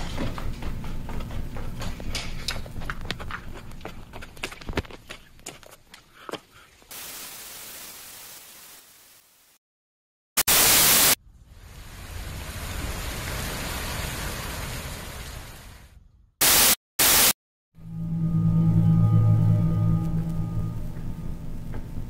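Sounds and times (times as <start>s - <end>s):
steady static hiss: 10.4s - 11.2s.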